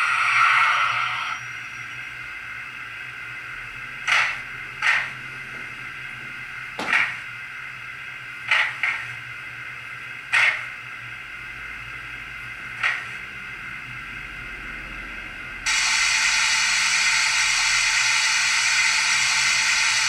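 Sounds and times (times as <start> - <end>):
loud steam hiss: 15.7 - 20.0.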